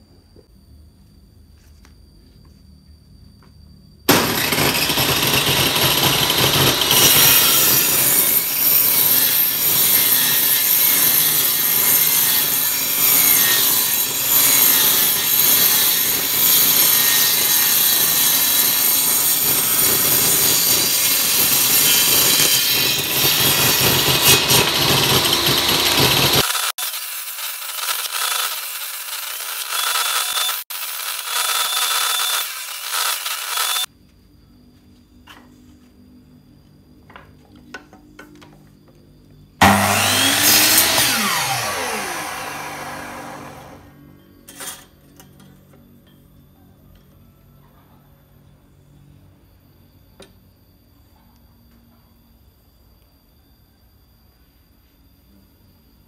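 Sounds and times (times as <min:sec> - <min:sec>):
circular saw ripping wood: 0:04.1 - 0:33.9, 0:39.6 - 0:43.9.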